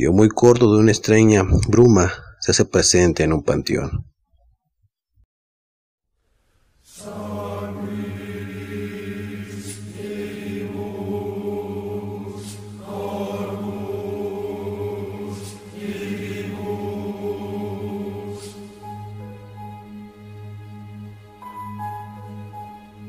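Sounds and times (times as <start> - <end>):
dark droning music: 7.0 - 23.0.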